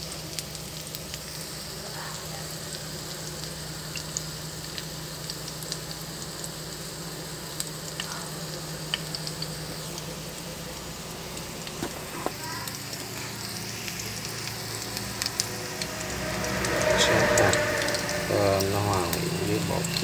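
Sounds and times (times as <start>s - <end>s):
patties sizzling in a pan: 0.0s - 20.0s.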